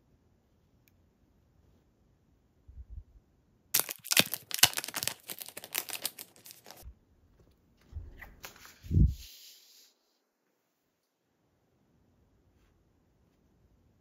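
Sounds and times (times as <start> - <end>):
plastic sleeve crinkling: 3.8 - 6.8.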